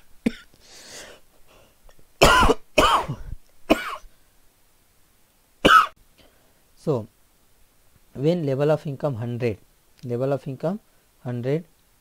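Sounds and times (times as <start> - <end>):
person coughing: 0.2 - 0.5, 2.2 - 4.1, 5.7 - 5.9.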